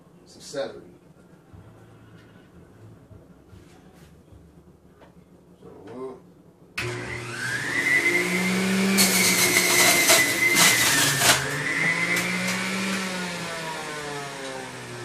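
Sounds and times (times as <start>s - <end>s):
juicer grinding celery: 6.8s - 15.0s
juicer motor whining: 6.8s - 15.0s.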